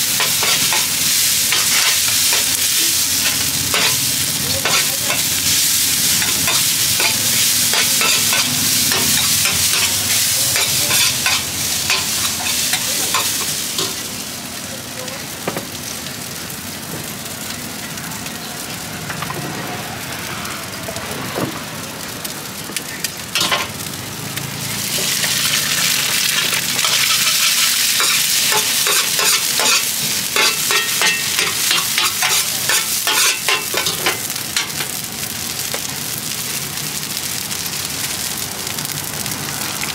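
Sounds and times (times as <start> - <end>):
rice sizzling in a wok: 0.0 - 39.9
metal spatula scraping a wok: 0.1 - 5.6, 6.2 - 14.0, 26.3 - 34.3.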